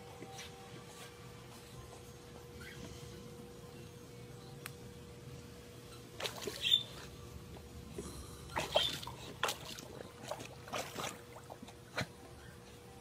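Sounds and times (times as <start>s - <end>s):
water splashing and sloshing: 6.1s - 12.4s.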